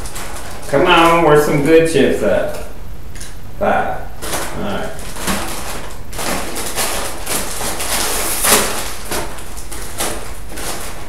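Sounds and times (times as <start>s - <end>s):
chip bag crinkling: 0.0s - 3.4s, 4.2s - 11.0s.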